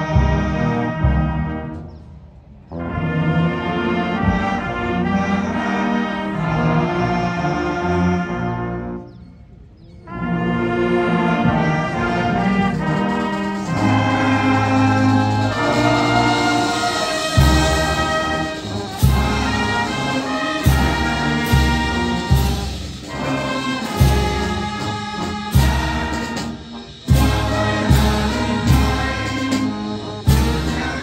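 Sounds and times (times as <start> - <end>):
marching band playing chords: 0.0 - 31.0
cymbal crashes: 13.3 - 30.8.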